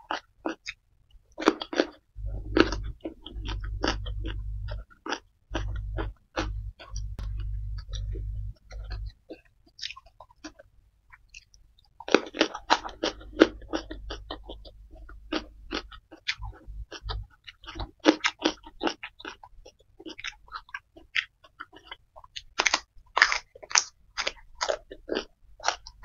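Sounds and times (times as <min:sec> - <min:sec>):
close-miked chewing food: 0:00.0 - 0:26.0
low rumble: 0:02.2 - 0:04.8, 0:05.5 - 0:09.1, 0:12.7 - 0:17.3.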